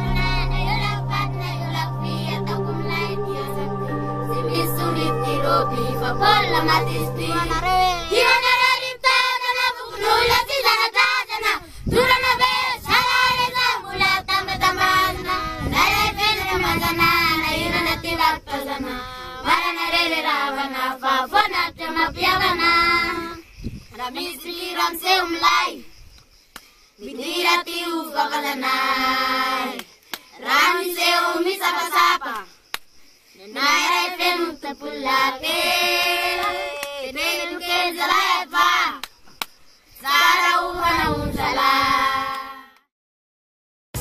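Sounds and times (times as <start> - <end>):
held background drone: 0.0 - 9.0
children singing: 0.0 - 21.6, 33.7 - 39.0.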